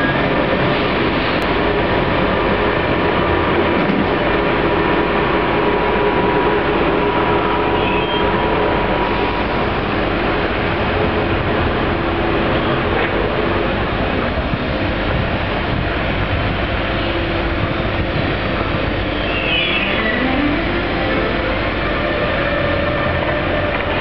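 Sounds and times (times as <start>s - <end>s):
locomotive rumble: 0.0s - 24.0s.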